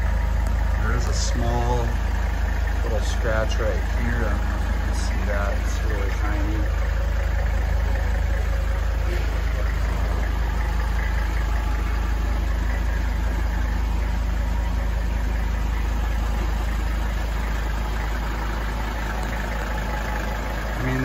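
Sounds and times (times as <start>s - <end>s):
diesel engine idling: 0.0s - 21.0s.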